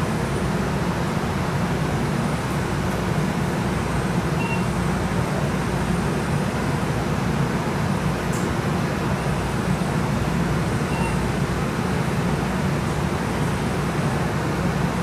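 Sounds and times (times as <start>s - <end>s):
streetcar low hum and rumble: 0.0s - 15.0s
short high beep: 4.4s - 4.7s, 10.9s - 11.2s.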